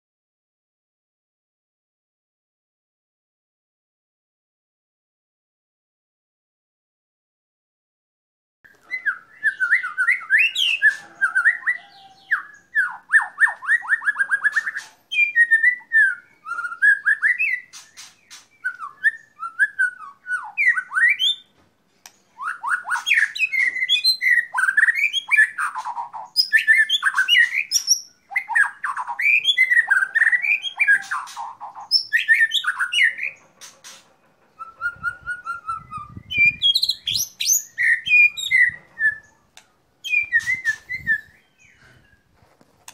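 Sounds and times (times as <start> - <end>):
bird singing whistled phrases and trills: 8.7 - 21.5, 22.3 - 33.4, 34.5 - 39.4, 40.0 - 42.3.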